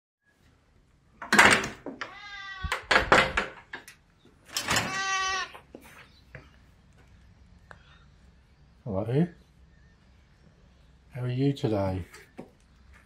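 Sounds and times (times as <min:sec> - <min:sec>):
door being unbolted and opened: 0:01.2 - 0:02.1, 0:02.7 - 0:03.9, 0:04.5 - 0:05.1
cat meowing: 0:02.1 - 0:02.8, 0:04.8 - 0:05.6.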